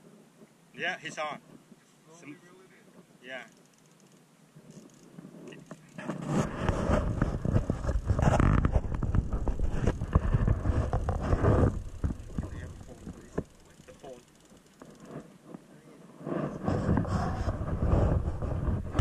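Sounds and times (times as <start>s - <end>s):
wind buffeting microphone: 6.2s - 13.5s, 16.3s - 19.0s.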